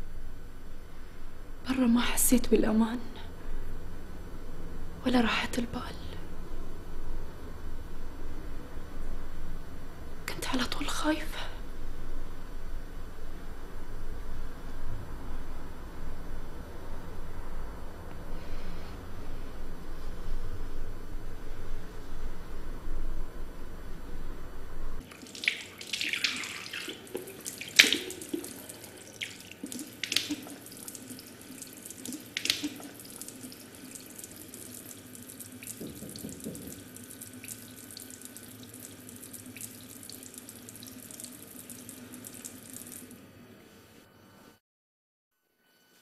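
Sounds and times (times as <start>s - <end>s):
water splashing: 25.1s - 43.0s
tap running into sink: 35.6s - 37.1s.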